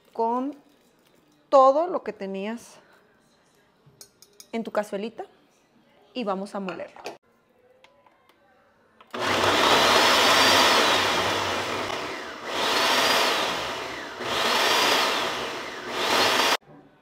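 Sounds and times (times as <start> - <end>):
blender motor whine: 9.1 - 16.6.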